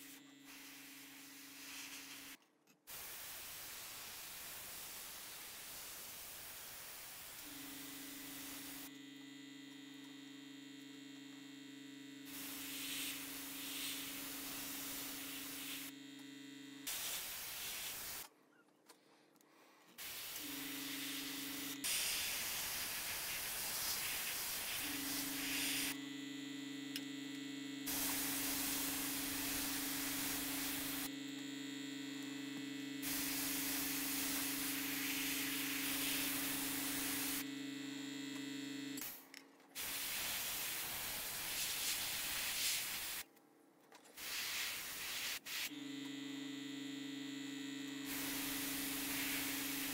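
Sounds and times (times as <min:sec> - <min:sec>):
airbrush spraying hiss: 0:00.5 - 0:02.4, 0:12.3 - 0:15.9, 0:16.9 - 0:18.2, 0:20.0 - 0:26.0, 0:33.0 - 0:37.4, 0:39.8 - 0:43.2, 0:44.2 - 0:45.7, 0:48.1 - 0:49.9.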